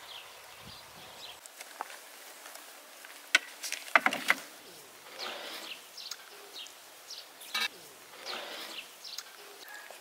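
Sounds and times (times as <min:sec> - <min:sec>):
small birds chirping: 0:00.0 - 0:01.5, 0:04.6 - 0:10.0.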